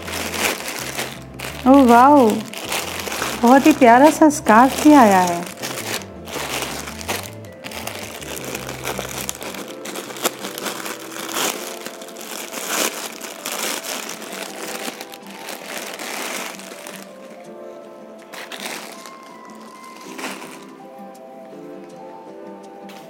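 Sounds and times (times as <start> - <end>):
plastic packaging crinkling: 0.0 - 20.9
background music: 0.0 - 23.0.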